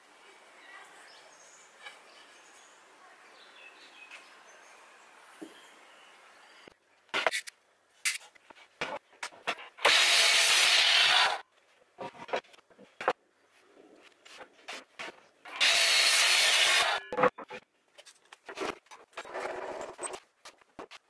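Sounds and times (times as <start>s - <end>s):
power saw cutting: 9.8s - 11.4s, 15.5s - 17.0s.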